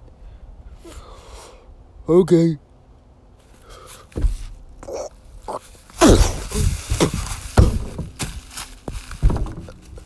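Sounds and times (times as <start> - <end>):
loud thumps of a struggle: 6.0 - 10.0.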